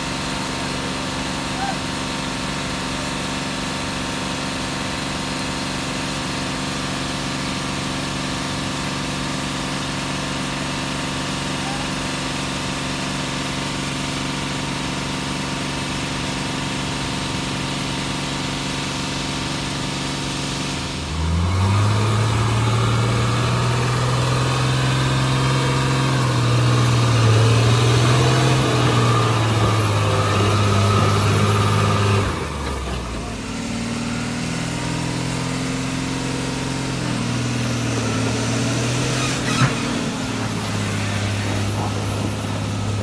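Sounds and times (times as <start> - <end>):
truck diesel engines running: 0.0 - 43.0
truck engine straining in mud: 0.0 - 43.0.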